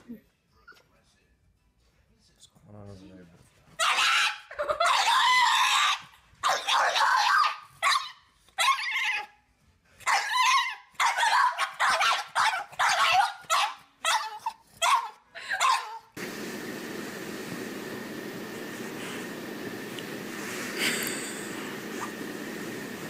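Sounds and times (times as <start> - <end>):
dog barking and yowling: 3.8 - 9.4, 10.0 - 16.2
steady hiss: 16.2 - 23.0.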